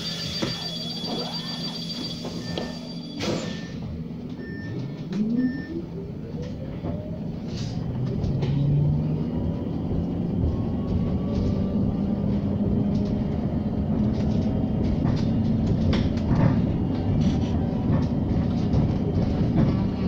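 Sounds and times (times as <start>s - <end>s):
short beeps: 0.0s - 3.8s
steady high beeping tone: 0.0s - 3.8s.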